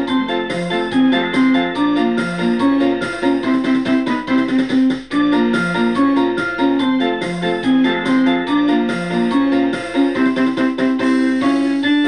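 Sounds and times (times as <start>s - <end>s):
keyboard music: 0.0s - 12.0s.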